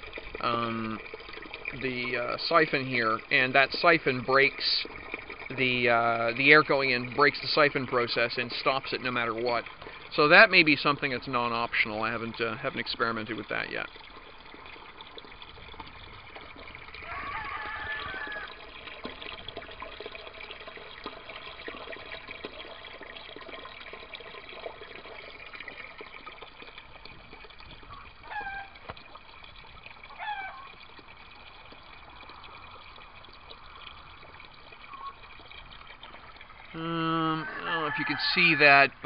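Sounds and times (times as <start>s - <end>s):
water pouring into a tank: 0.0s - 39.0s
bird calls: 34.9s - 35.2s.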